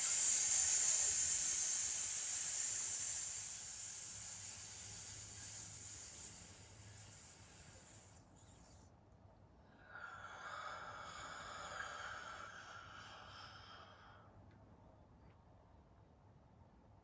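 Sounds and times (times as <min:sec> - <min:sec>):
hissing out-breath: 0:00.0 - 0:08.6, 0:09.8 - 0:14.3
slow soft in-breath: 0:00.0 - 0:14.6.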